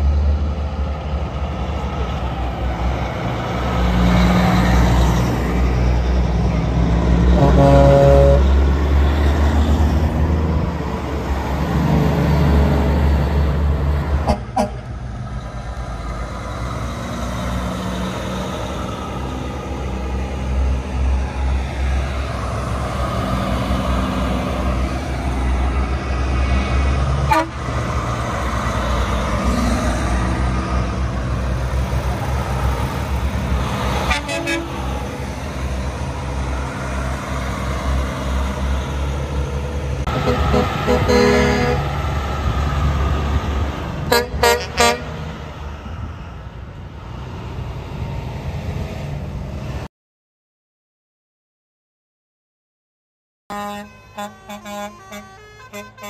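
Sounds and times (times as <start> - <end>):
truck diesel engines: 0.0 - 49.9, 53.5 - 56.0
truck horns tooting: 7.2 - 8.7, 14.2 - 14.9, 27.2 - 27.7, 34.0 - 35.0, 40.1 - 42.0, 44.0 - 45.2, 53.5 - 56.0.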